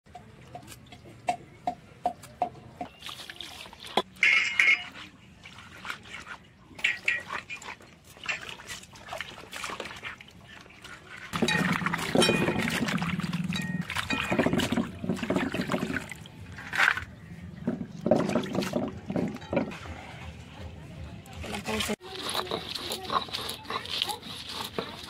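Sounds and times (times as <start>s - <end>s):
rustling and wet handling sounds: 0.1s - 25.0s
water sloshing in a metal bowl: 0.1s - 25.0s
hands scraping fish skin: 22.0s - 25.0s.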